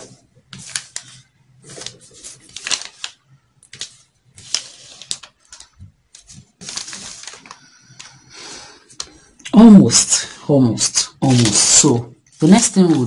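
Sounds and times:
paper rustling and crackling: 0:00.0 - 0:08.2, 0:11.2 - 0:13.0.

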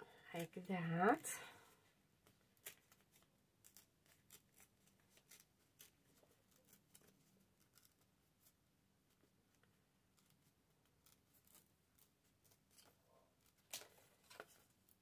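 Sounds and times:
paper tearing: 0:02.6 - 0:08.6.

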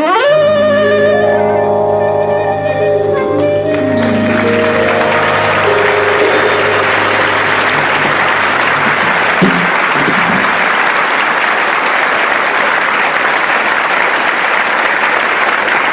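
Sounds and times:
jazz band final chord: 0:00.4 - 0:10.1
audience applauding: 0:03.2 - 0:15.9.

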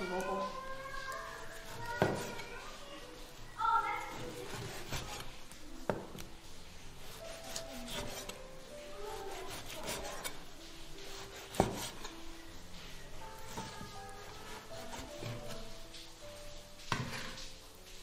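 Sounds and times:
cleaver rasping through fat: 0:04.1 - 0:05.6, 0:06.8 - 0:12.2, 0:13.4 - 0:15.8.

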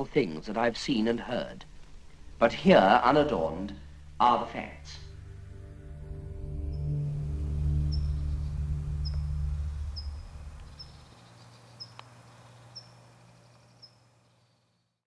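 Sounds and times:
low drone: 0:03.7 - 0:13.7
short high chirp: 0:05.1 - 0:11.2.

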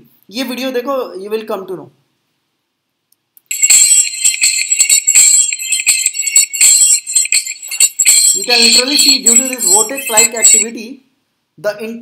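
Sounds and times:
high-pitched metallic jingling: 0:03.5 - 0:10.7.

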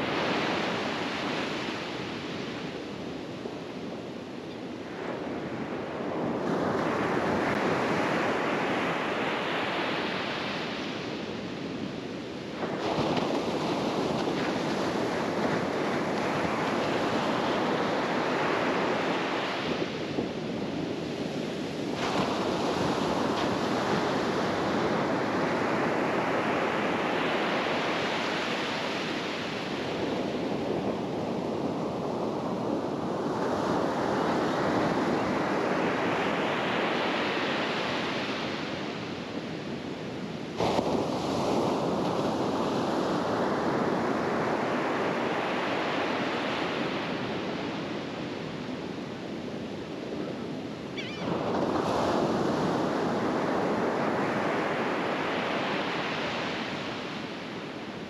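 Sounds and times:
surf breaking on sandy beach: 0:12.5 - 0:39.1, 0:39.9 - 0:48.8, 0:49.4 - 0:58.0.

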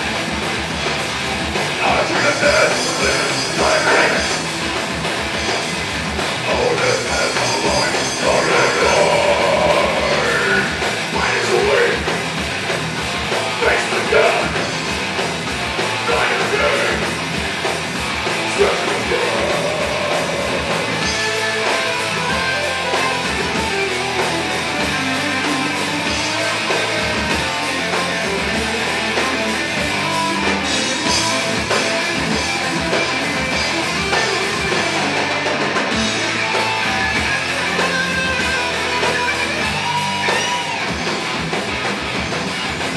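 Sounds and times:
drum kit: 0:00.0 - 0:42.9
electric guitars: 0:00.0 - 0:42.9
vocals: 0:01.7 - 0:04.8, 0:06.3 - 0:12.4, 0:13.4 - 0:15.1, 0:15.9 - 0:17.4, 0:18.2 - 0:22.2, 0:29.0 - 0:40.8.

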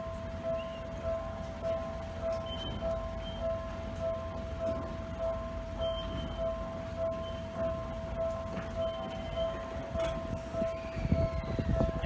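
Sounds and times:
level-crossing alarm bell ringing: 0:00.0 - 0:12.0.

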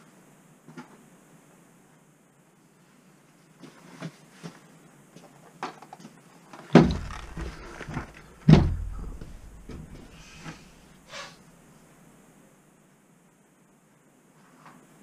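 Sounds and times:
light knocks and handling noise: 0:03.6 - 0:10.8
boxes thudding on a mat: 0:06.6 - 0:10.6.

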